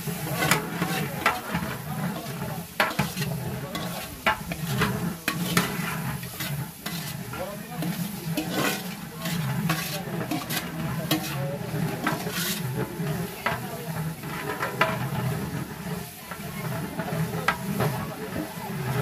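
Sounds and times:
metal ladle scraping pot: 0:00.0 - 0:19.0
onions sizzling in oil: 0:00.0 - 0:19.0.

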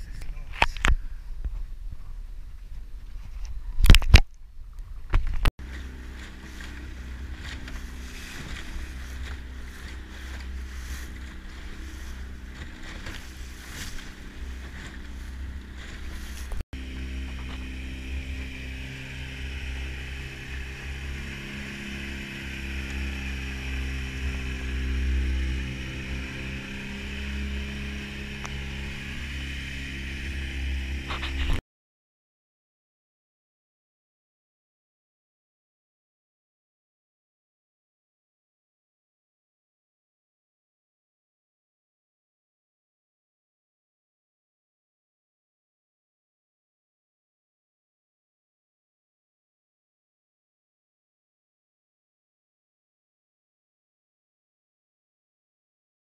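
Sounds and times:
boat motor running: 0:05.2 - 0:31.6
water rushing: 0:05.6 - 0:31.6.

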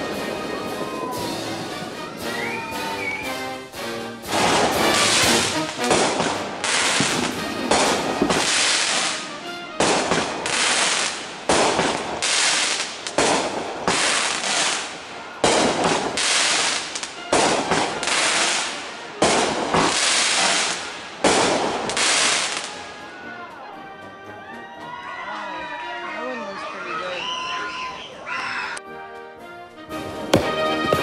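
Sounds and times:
hissing crackling firework tail: 0:00.0 - 0:22.8
firework shells bursting: 0:04.2 - 0:22.7.

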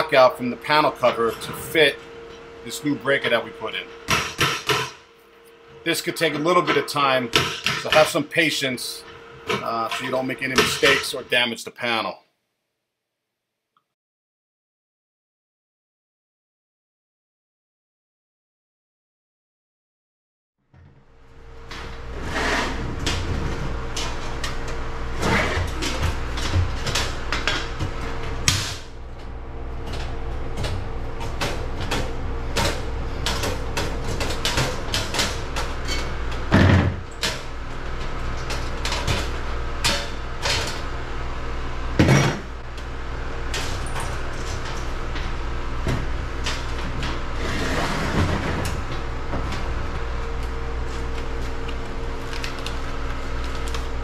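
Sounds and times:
steady hum: 0:00.0 - 0:12.1, 0:21.0 - 0:54.0
sharp knocks on metal: 0:04.1 - 0:05.0.

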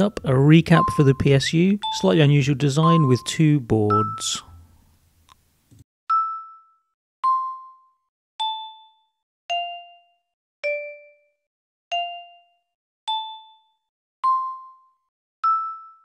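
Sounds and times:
chime notes melody: 0:00.0 - 0:04.7, 0:06.1 - 0:11.3, 0:11.9 - 0:16.0.

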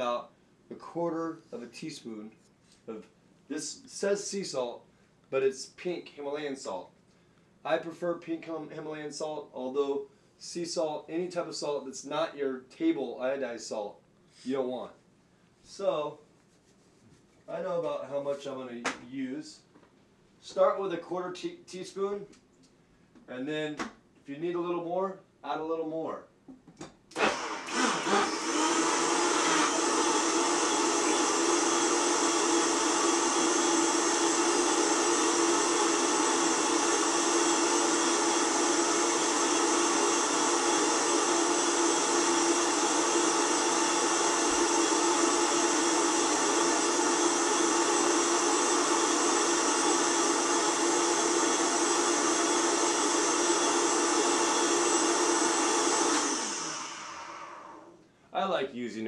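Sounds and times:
blender motor running: 0:27.1 - 0:58.0.

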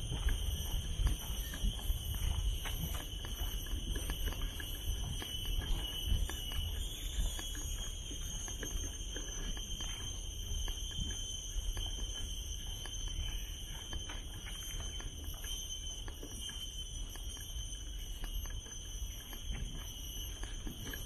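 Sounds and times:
wind rumble on microphone: 0:00.0 - 0:08.4
footsteps ticking: 0:00.0 - 0:21.0
insects droning: 0:00.0 - 0:21.0.

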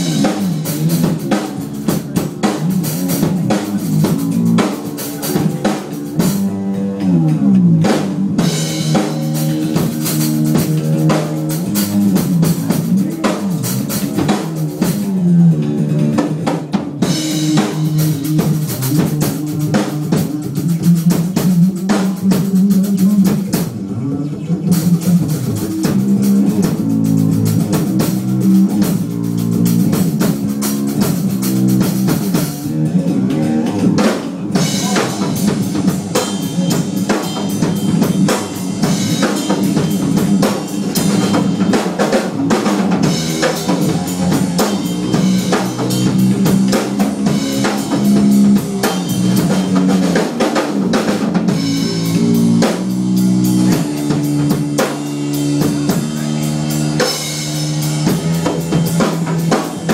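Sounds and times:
drum kit beat: 0:00.0 - 0:59.9
one-string bass sliding notes: 0:25.0 - 0:59.9.

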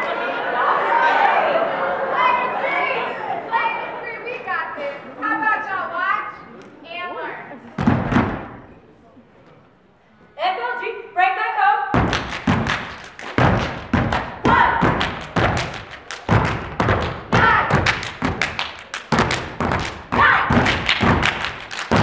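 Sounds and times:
boots stamping on a wooden stage: 0:11.9 - 0:22.0
people shouting: 0:14.4 - 0:15.0, 0:17.4 - 0:17.8, 0:20.1 - 0:20.7.

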